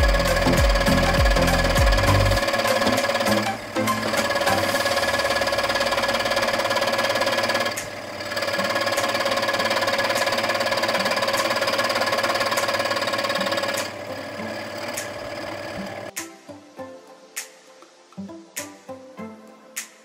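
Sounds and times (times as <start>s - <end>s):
scroll saw cutting plastic: 0.1s - 14.1s.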